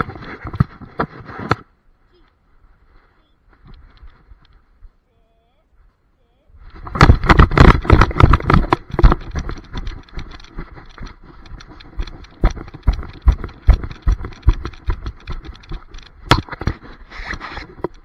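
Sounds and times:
rustling: 0:00.0 - 0:18.0
camera thumps and knocks: 0:06.8 - 0:16.8.

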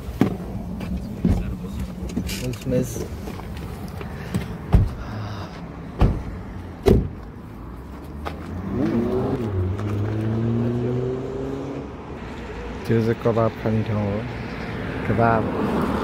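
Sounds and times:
car engine pulling away: 0:08.0 - 0:12.8.

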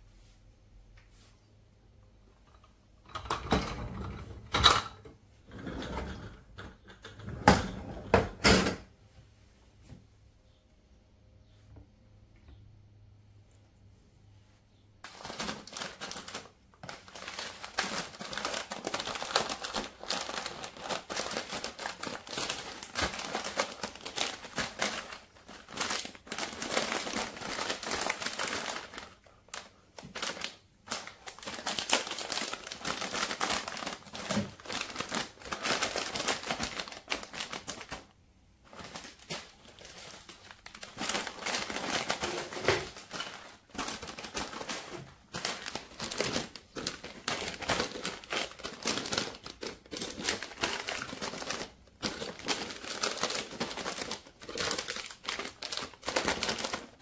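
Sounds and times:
plastic bags crinkling: 0:15.0 - 0:57.0.

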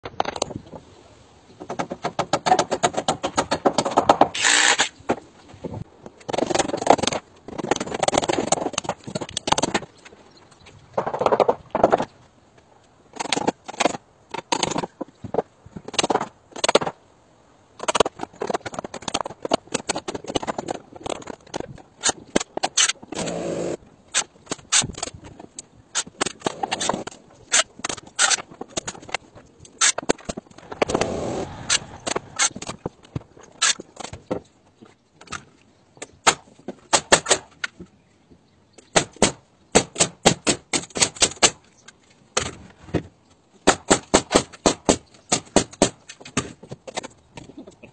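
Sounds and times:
continuous tool noise: 0:01.6 - 0:05.2, 0:17.9 - 0:36.1.

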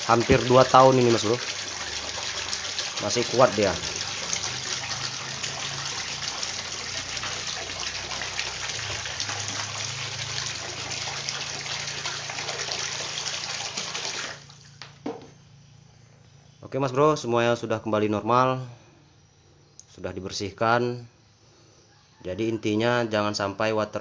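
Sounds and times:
water jet splashing into tub: 0:00.0 - 0:14.8
low pump hum: 0:00.0 - 0:16.4.

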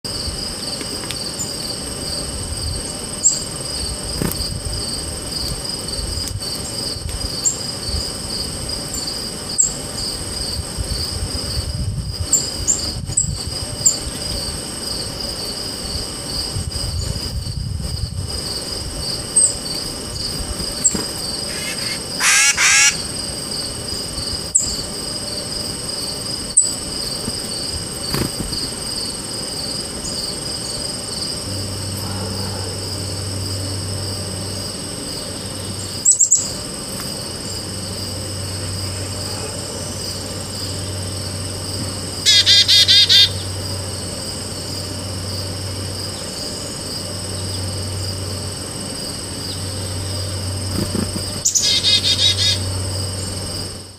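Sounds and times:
crickets chirping: 0:00.0 - 0:53.9
rapid harsh bird calls: 0:18.5 - 0:29.2, 0:42.2 - 0:43.6, 0:49.5 - 0:53.4
high thin bird alarm calls: 0:20.8 - 0:23.1, 0:42.3 - 0:43.5, 0:51.4 - 0:52.6.

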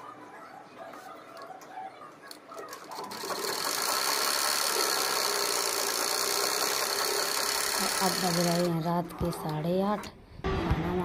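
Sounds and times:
sewing machine stitching: 0:02.6 - 0:08.8.

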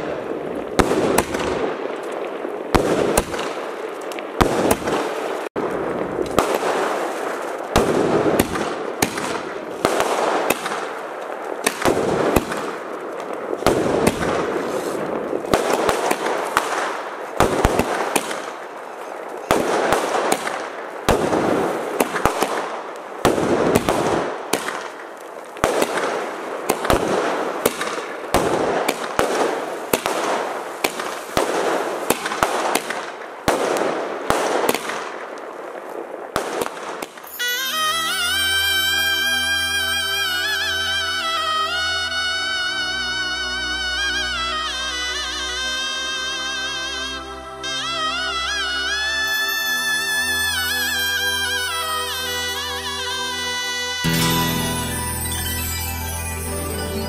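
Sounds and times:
fireworks bangs: 0:00.0 - 0:41.3.

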